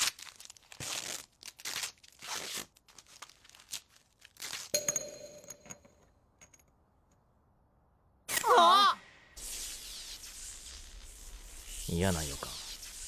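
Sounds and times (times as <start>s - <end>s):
metal screw clinking: 4.7s - 7.2s.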